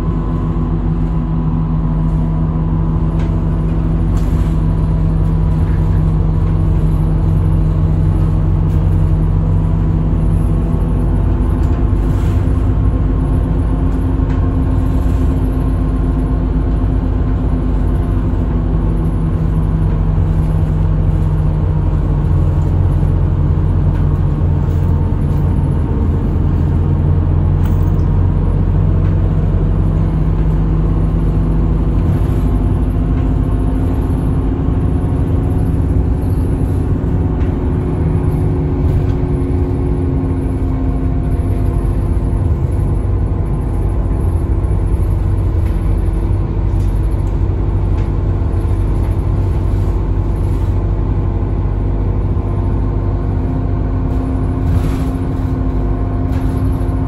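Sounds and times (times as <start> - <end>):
bus engine running: 0.0 - 57.0
heavy road rumble: 0.0 - 57.0.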